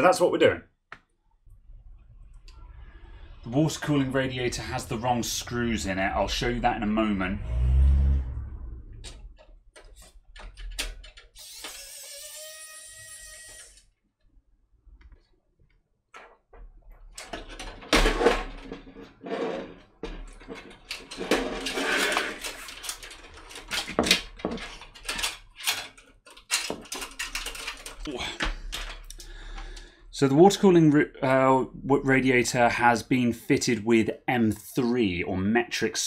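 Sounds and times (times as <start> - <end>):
hands rattling inside metal case: 19.6 - 29.1.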